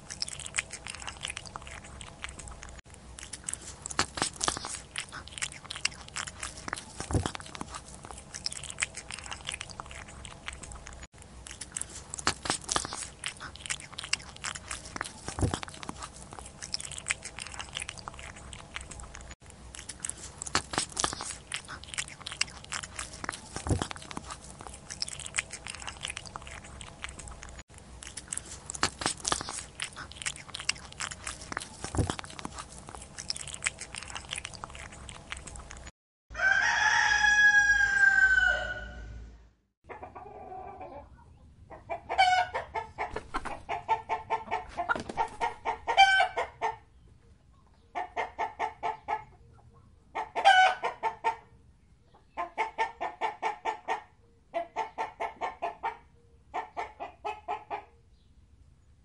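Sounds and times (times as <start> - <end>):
cat licking and chewing: 0.0 - 35.9
rooster crowing: 36.3 - 39.2.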